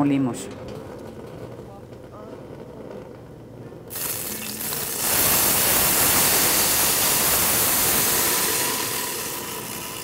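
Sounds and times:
sauce sizzling in hot oil: 3.9s - 10.0s.

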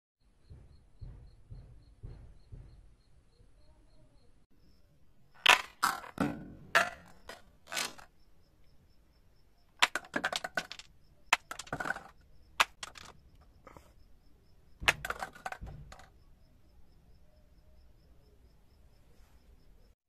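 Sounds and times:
clattering clicks: 9.8s - 13.8s.

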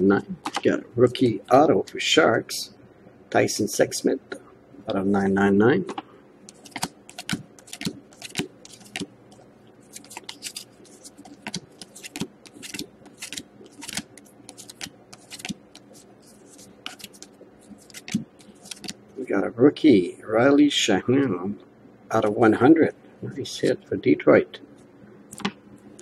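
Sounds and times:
trading cards flicking: 5.9s - 19.0s.

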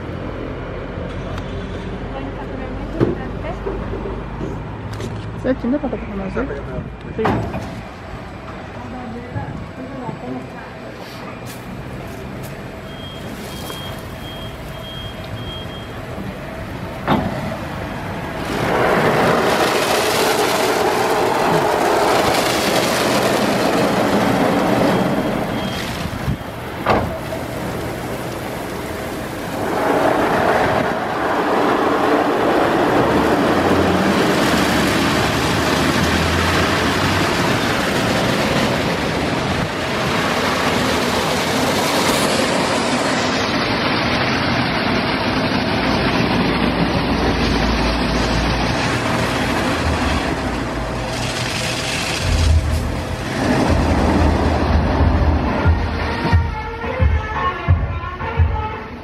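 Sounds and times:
car wash brushes and water jets hissing: 10.8s - 56.6s.

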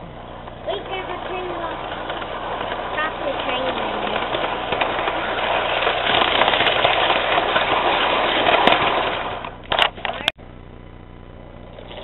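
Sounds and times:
model train motor whir: 0.4s - 10.3s.

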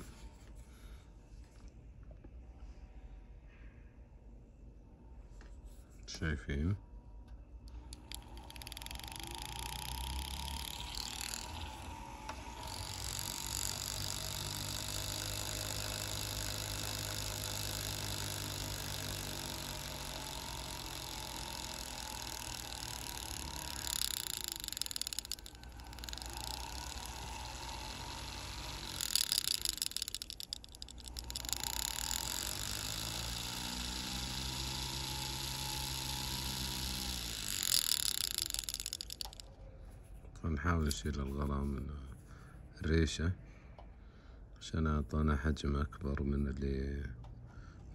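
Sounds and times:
rotary tool whining: 0.0s - 0.6s, 7.7s - 39.6s
burr grinding into glue: 8.0s - 39.4s.

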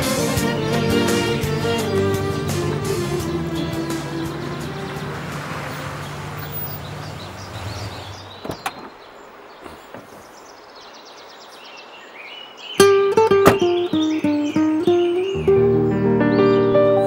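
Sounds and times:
background music: 0.0s - 6.4s, 13.6s - 17.0s
faint bird chirps: 6.4s - 17.0s
truck door clicking open: 8.2s - 9.0s.

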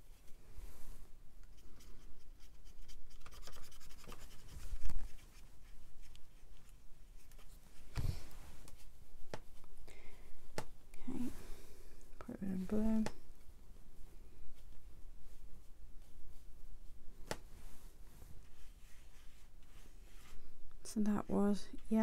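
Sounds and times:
brush scrubbing paint palette: 1.5s - 9.6s.

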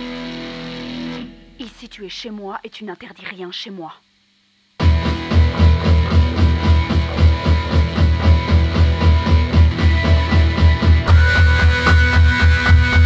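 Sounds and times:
rock music with guitar: 0.0s - 1.6s, 4.8s - 13.0s
fast pulsing bass beat: 4.8s - 13.0s.

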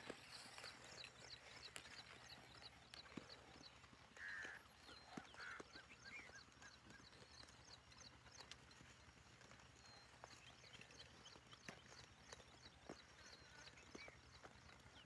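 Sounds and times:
sheep cropping grass: 0.0s - 7.3s
small birds chirping: 0.0s - 15.0s.

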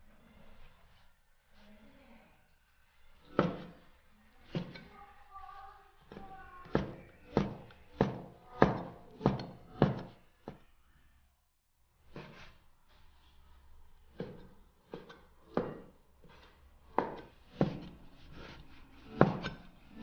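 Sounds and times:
cleaver chopping on wooden board: 3.3s - 3.8s, 6.1s - 10.2s, 14.2s - 15.9s, 17.0s - 19.6s.

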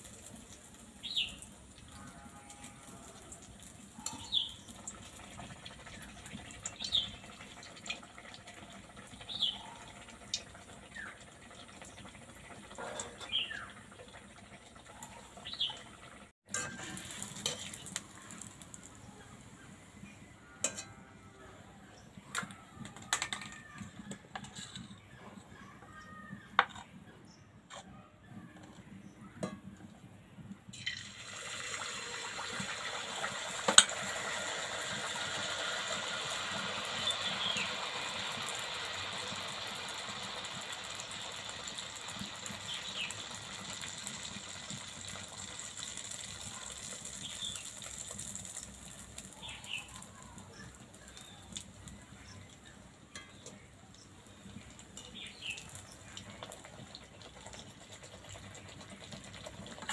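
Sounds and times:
batter sizzling in hot oil: 0.0s - 20.9s, 30.7s - 59.9s.

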